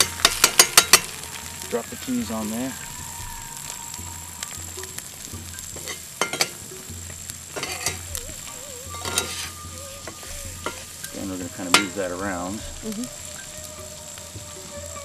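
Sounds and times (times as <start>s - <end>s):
egg sizzling in a skillet: 0.0s - 15.0s
metal spatula scraping a pan: 5.6s - 6.8s, 7.5s - 12.8s.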